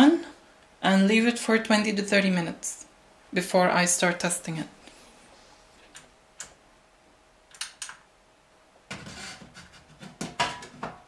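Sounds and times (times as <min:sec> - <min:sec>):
metal cover scraping and rustling: 0:08.9 - 0:11.0.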